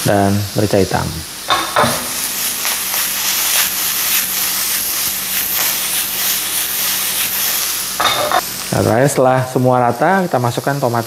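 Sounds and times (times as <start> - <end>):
food sizzling in frying pan: 0.0 - 11.0
food tossed in pan swishing: 2.1 - 7.9.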